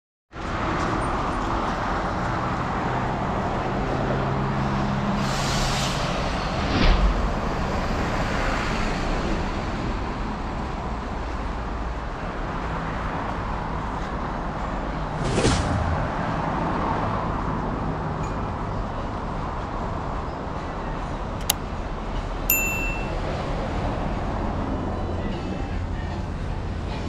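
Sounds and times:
passing cars: 0:00.4 - 0:27.0.

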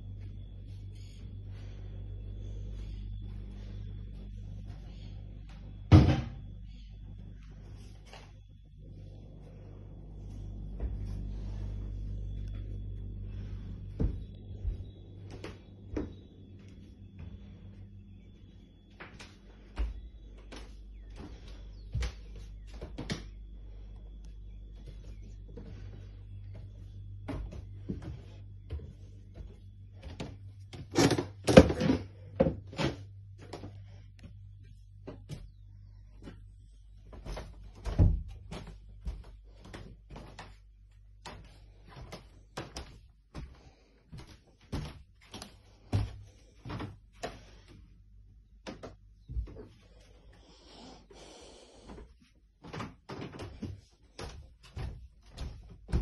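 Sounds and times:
footsteps on wooden stairs: 0:13.4 - 0:17.5, 0:18.9 - 0:23.4, 0:24.8 - 0:31.2, 0:36.2 - 0:47.8, 0:51.8 - 0:56.0.

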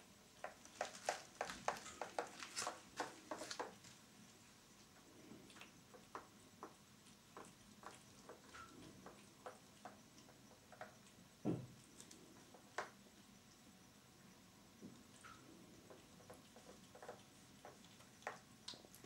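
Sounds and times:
faint ticks: 0:04.8 - 0:14.0, 0:14.8 - 0:19.0.

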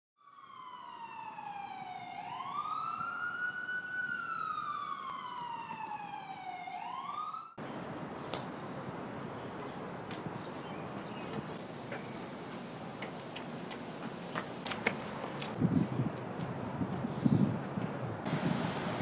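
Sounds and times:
emergency siren wailing: 0:00.2 - 0:07.6.

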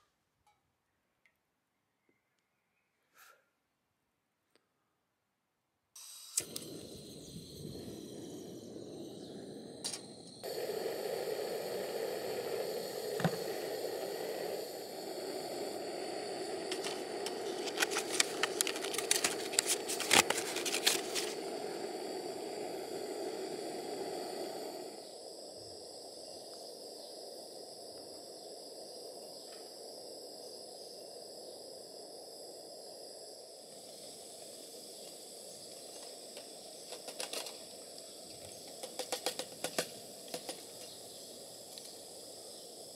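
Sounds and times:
burner ignition click: 0:06.0 - 0:24.8
gas burner hissing: 0:06.0 - 0:42.9.

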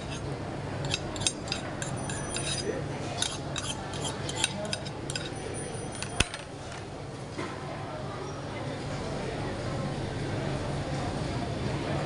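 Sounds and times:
fork scraping a metal plate: 0:00.0 - 0:06.4.

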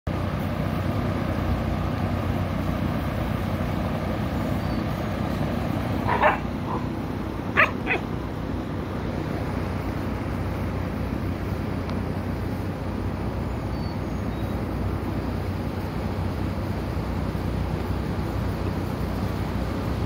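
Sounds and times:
puppies yipping: 0:05.8 - 0:08.3.

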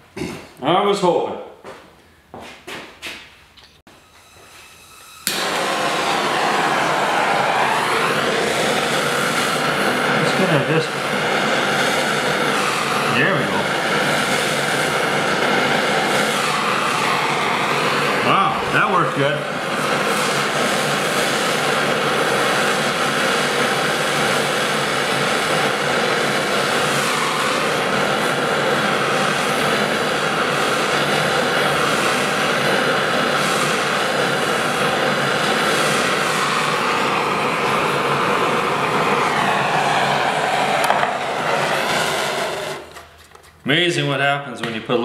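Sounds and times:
gas torch hissing: 0:03.9 - 0:43.4.

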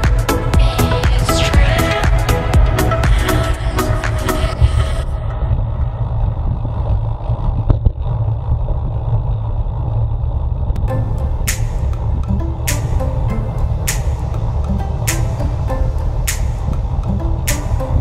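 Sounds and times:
background music: 0:00.0 - 0:05.4, 0:10.8 - 0:18.0
wind and road noise rumble: 0:03.4 - 0:18.0.

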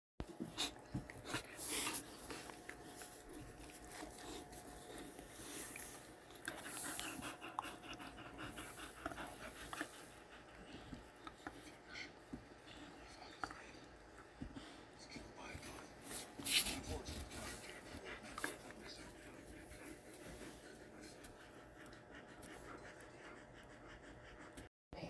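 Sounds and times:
dogs panting and huffing: 0:00.2 - 0:24.7.

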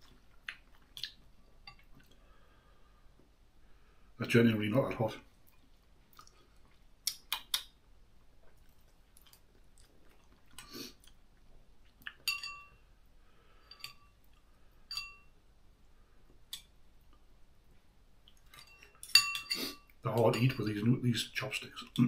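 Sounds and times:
chewing noodles: 0:00.0 - 0:02.2, 0:05.4 - 0:07.7, 0:08.4 - 0:11.2
chopsticks clinking against bowl: 0:12.2 - 0:12.8, 0:14.9 - 0:15.3, 0:18.5 - 0:20.9.

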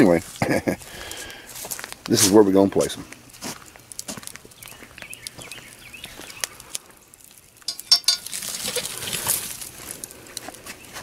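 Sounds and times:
metal hook scraping through ash: 0:07.6 - 0:09.7
metal clinking on cast iron pan: 0:07.7 - 0:08.9.

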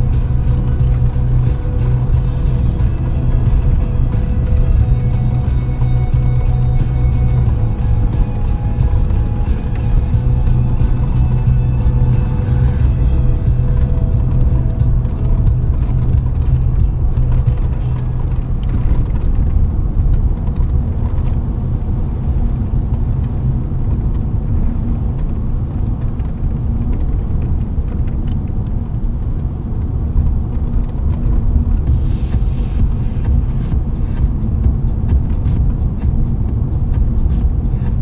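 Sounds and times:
car engine and tyres rumbling: 0:00.0 - 0:38.0.

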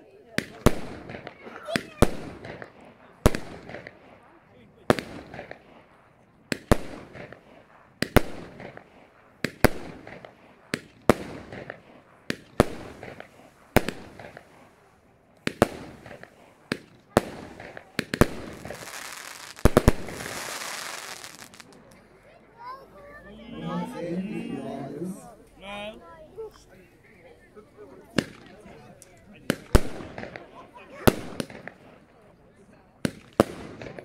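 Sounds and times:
firework bangs: 0:00.4 - 0:22.0, 0:28.1 - 0:28.7, 0:29.4 - 0:32.0, 0:33.0 - 0:34.0
dense firework hissing: 0:17.4 - 0:21.8.

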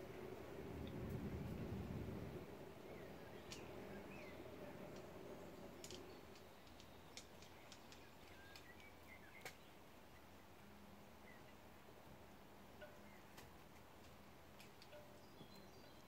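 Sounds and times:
small birds chirping: 0:02.4 - 0:11.8, 0:12.8 - 0:16.0
sharp ticks: 0:05.8 - 0:09.6.

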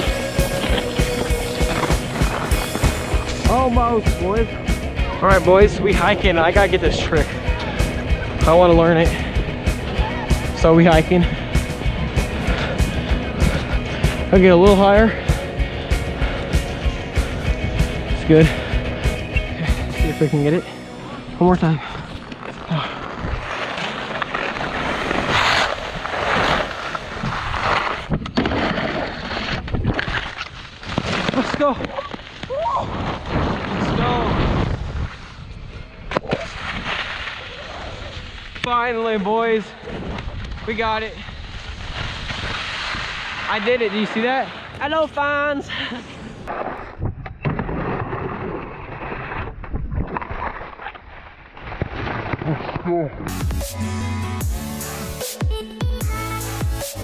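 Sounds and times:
skis scraping over snow: 0:00.0 - 0:04.5, 0:21.6 - 0:45.6
wind noise on microphone: 0:24.7 - 0:30.9, 0:32.4 - 0:38.5, 0:39.8 - 0:43.4, 0:46.6 - 0:50.8.

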